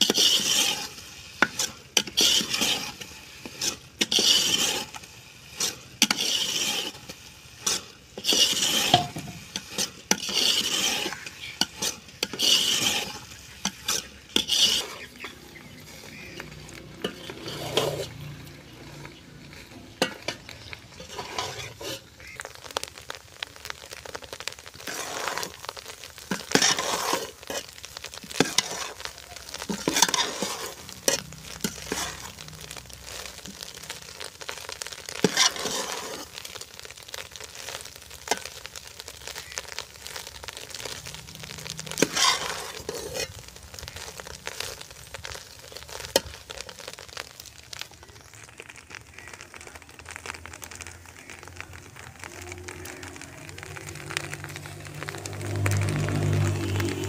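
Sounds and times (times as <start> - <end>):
metal spoon scraping a pot: 0.0 - 22.5, 24.4 - 36.5, 39.3 - 44.7
ghee sizzling in a pot: 0.0 - 57.0.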